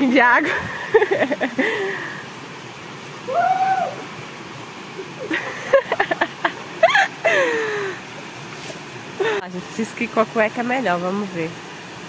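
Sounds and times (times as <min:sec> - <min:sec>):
small waterfall rushing: 0:00.0 - 0:12.0
person hooting cry: 0:03.3 - 0:04.0.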